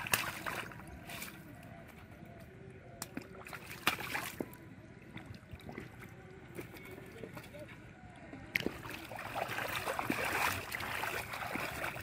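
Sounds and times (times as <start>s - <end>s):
hands splashing in shallow water: 0.0s - 1.4s, 3.0s - 4.5s, 8.6s - 12.0s.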